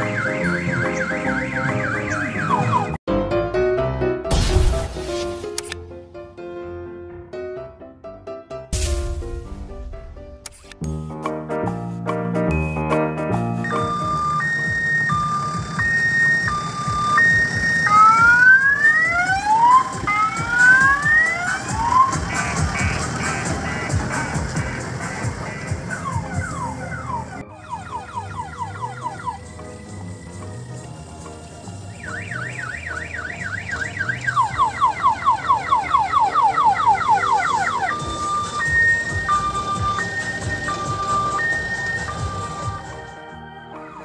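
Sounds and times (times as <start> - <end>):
electronic siren: 0.0 - 3.0, 13.6 - 23.5, 25.3 - 44.0
vehicle engine rumble: 13.4 - 43.5.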